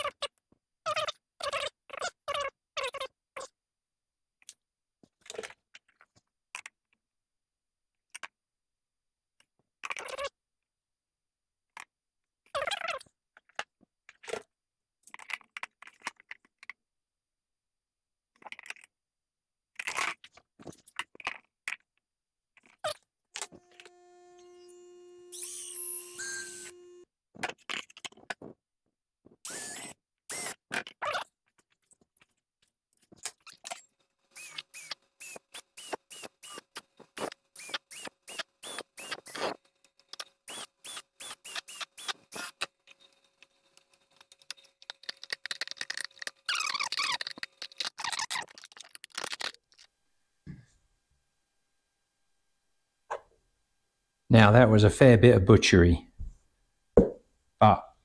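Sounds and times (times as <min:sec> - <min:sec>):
cordless drill running: 0:23.5 - 0:27.0, 0:29.5 - 0:30.5, 0:34.3 - 0:39.6, 0:40.4 - 0:43.1.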